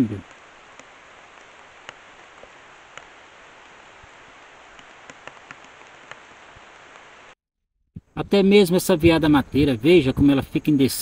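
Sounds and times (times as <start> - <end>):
forest background hiss: 0.0 - 7.4, 8.0 - 11.0
faint ticks: 0.2 - 7.1.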